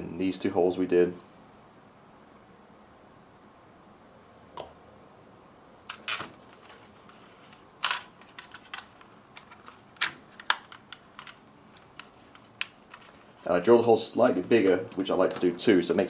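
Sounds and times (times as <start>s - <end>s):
plastic parts clicking: 7.5s - 13.2s.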